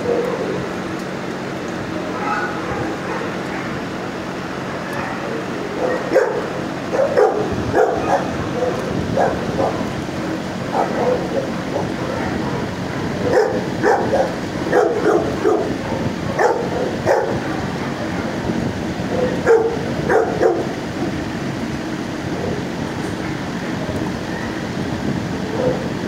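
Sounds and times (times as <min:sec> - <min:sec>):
dogs barking: 0:00.0 - 0:00.7, 0:02.1 - 0:04.1, 0:04.8 - 0:10.0, 0:10.6 - 0:18.4, 0:19.1 - 0:20.8, 0:25.4 - 0:25.9
steady background noise: 0:00.0 - 0:26.0.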